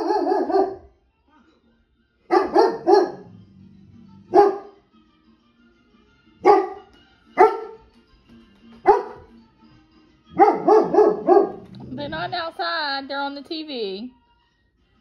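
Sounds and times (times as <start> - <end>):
large dog barking: 0.0 - 0.9, 2.3 - 3.3, 4.3 - 4.7, 6.4 - 7.8, 8.9 - 9.2, 10.4 - 11.8.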